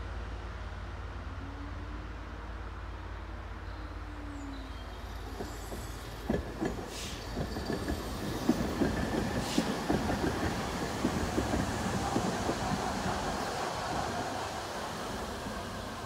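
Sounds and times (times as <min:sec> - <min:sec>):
tram rumble: 0:00.0 - 0:16.0
tram wheels clattering over rails: 0:04.9 - 0:16.0.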